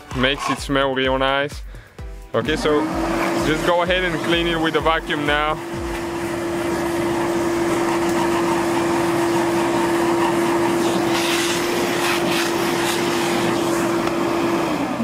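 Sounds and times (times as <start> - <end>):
nozzle scratching on filter: 0.0 - 0.7, 10.0 - 13.9
vacuum cleaner running: 2.4 - 15.0.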